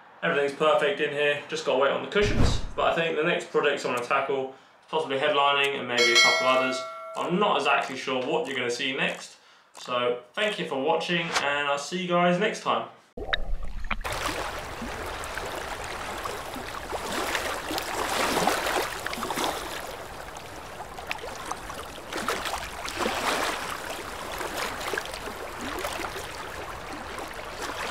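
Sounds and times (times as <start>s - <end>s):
sea water sloshing and splashing: 13.2s - 27.9s.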